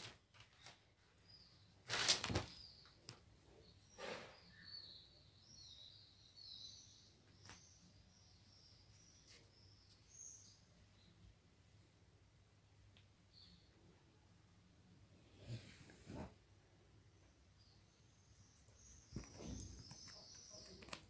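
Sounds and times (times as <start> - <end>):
small birds chirping: 0.6 - 11.4, 13.2 - 14.0, 16.7 - 21.0.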